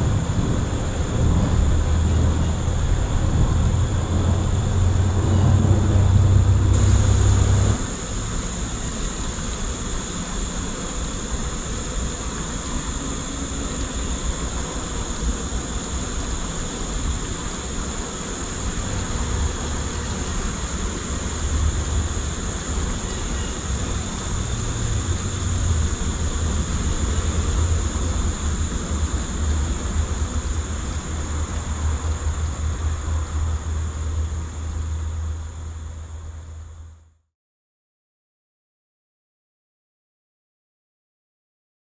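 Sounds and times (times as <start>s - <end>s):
bee swarm buzzing: 0.0s - 35.6s.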